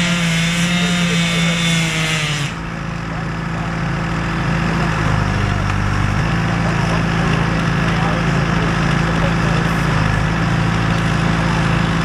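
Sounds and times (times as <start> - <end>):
chainsaw cutting tree trunk: 0.0 - 2.8
chainsaw idling: 0.0 - 12.0.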